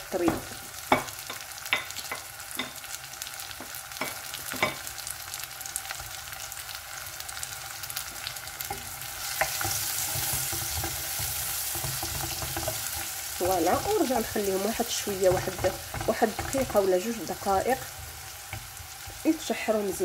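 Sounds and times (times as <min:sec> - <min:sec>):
onion sizzling in hot oil: 0:00.0 - 0:20.0
spatula stirring: 0:08.6 - 0:19.3.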